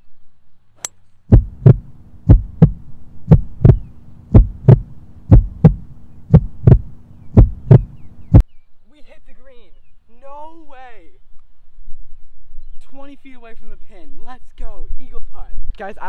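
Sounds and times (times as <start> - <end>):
heartbeat sound effect: 1.3 - 8.4
steady low hum: 1.3 - 8.4.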